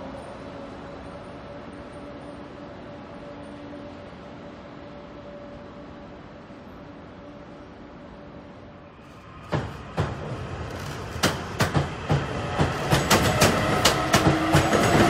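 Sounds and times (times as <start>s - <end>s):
train wheels clacking over rails: 9.0s - 15.0s.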